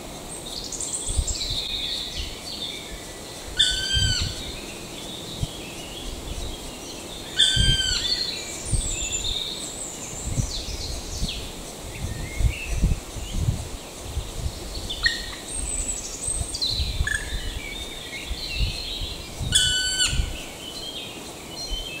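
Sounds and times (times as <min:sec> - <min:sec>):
small birds singing: 0:00.0 - 0:22.0
woodpecker calling: 0:03.6 - 0:04.5.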